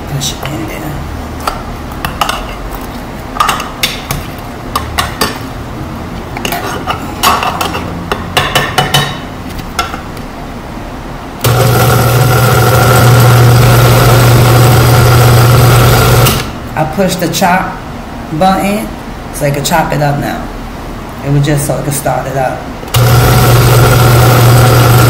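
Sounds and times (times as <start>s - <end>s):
blender motor chopping: 11.4s - 16.6s, 22.9s - 25.0s.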